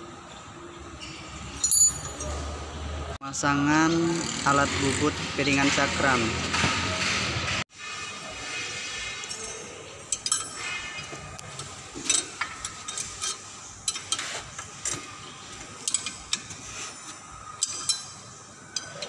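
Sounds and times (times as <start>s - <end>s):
wrenches clicking on metal: 9.2s - 19.0s.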